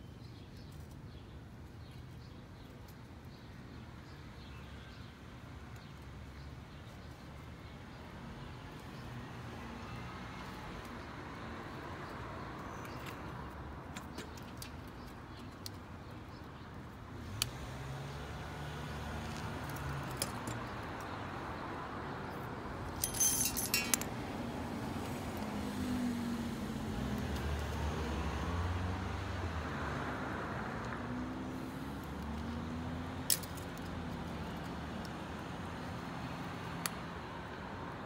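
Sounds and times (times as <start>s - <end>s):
metal tools clinking in plastic bag: 23.0s - 24.1s.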